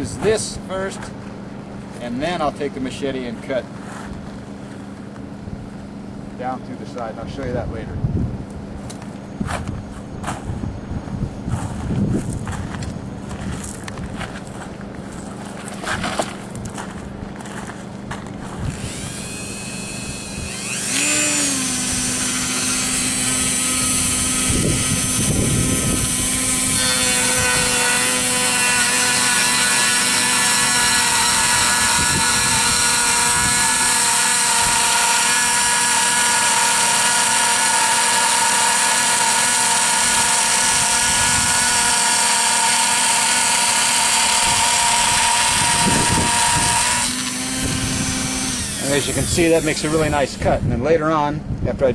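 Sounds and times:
rotary tool whining: 14.4s - 50.8s.

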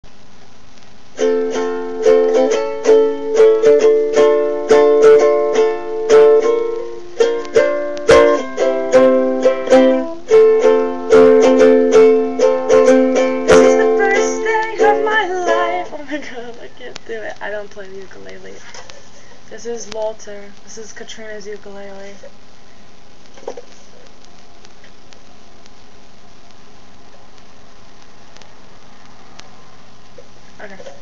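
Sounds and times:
ukulele strummed in chords: 1.2s - 17.3s.

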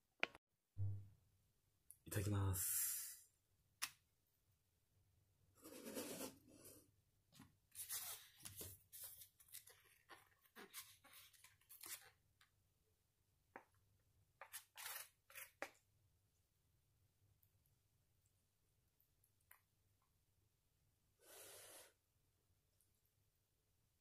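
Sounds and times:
chopsticks scraping noodles in cup: 5.6s - 6.5s, 14.4s - 15.6s.

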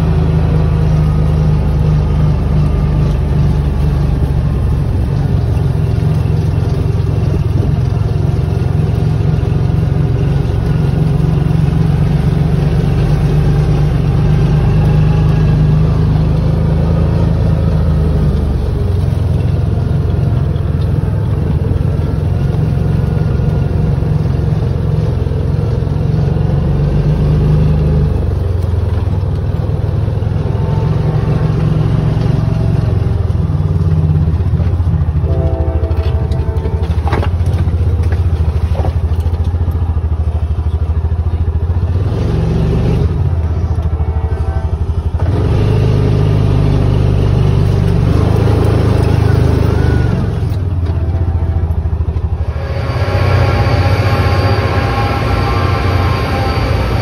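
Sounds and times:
vehicle engine droning: 0.0s - 57.0s.

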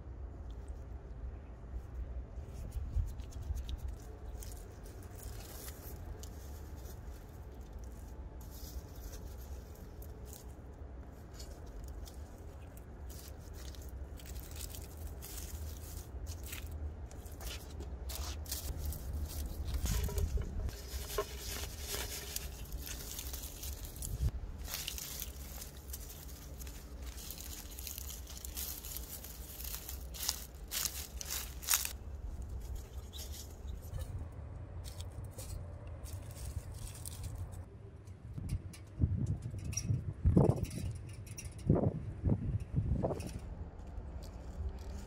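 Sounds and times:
steady low rumble: 0.0s - 45.0s
dry straw rustling: 2.3s - 37.7s
gloved hand working soil: 2.6s - 34.0s.

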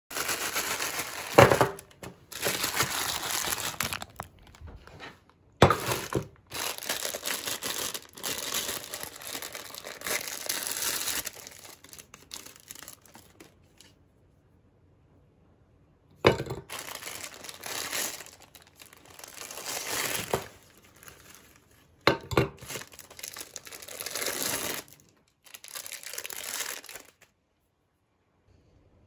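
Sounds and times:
wrapper tearing open: 0.1s - 4.6s, 5.7s - 14.0s, 16.6s - 21.9s, 22.6s - 27.3s
plastic wrappers crinkling: 0.1s - 14.0s, 16.4s - 27.3s.

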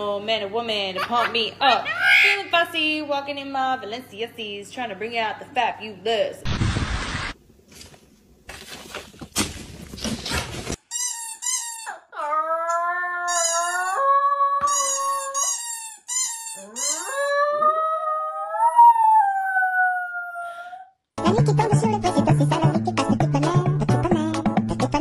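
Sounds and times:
rustling noise: 6.5s - 10.8s.

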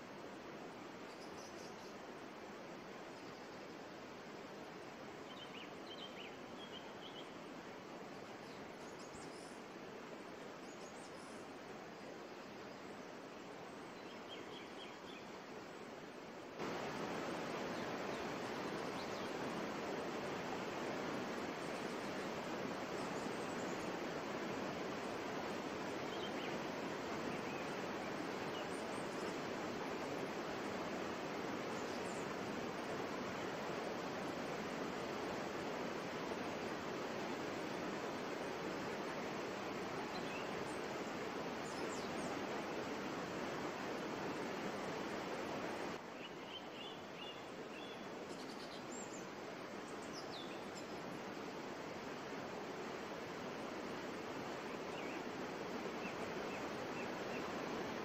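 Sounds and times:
waterfall rushing over rocks: 15.3s - 58.0s.

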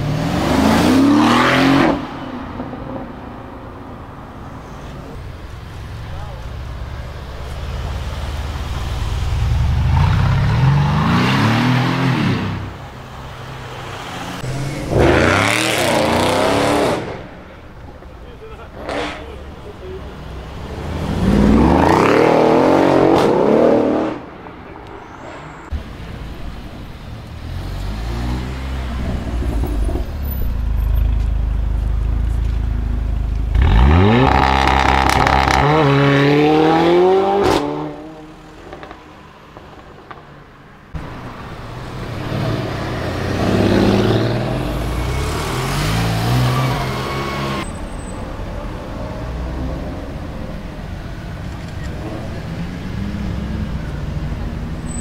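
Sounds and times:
car engine revving hard: 14.5s - 17.2s.

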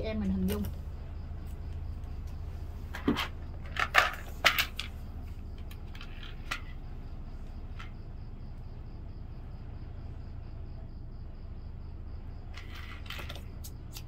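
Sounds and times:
low hum: 0.0s - 14.0s
small tools clicking: 12.6s - 14.0s.

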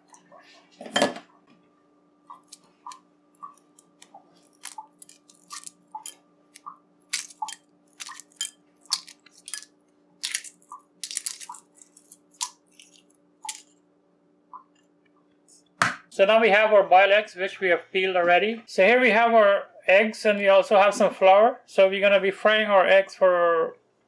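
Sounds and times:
eggshell cracking: 2.3s - 13.8s.

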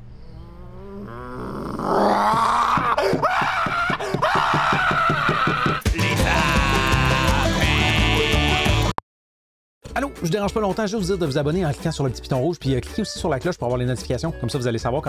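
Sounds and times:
man screaming high-pitched: 2.4s - 8.4s.

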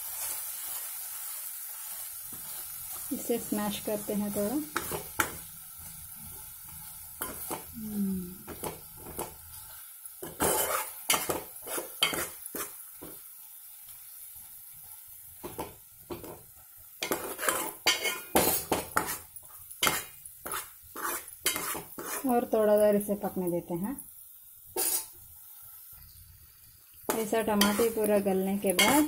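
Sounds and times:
faint sizzle: 0.0s - 29.0s
spoon scraping a metal pot: 10.2s - 12.7s, 17.0s - 22.3s, 24.8s - 25.1s, 27.1s - 28.1s, 28.7s - 29.0s.

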